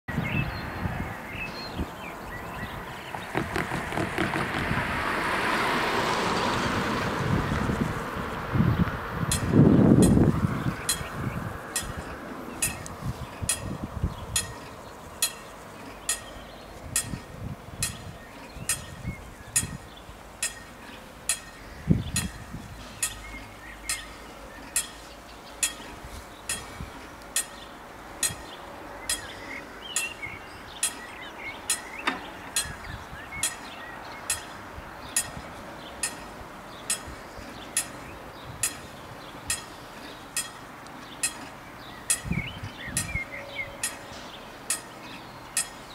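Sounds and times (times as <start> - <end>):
birds chirping: 0.1 - 4.6, 8.7 - 45.9
level crossing warning bell: 10.8 - 19.0, 19.6 - 21.6, 22.2 - 45.9.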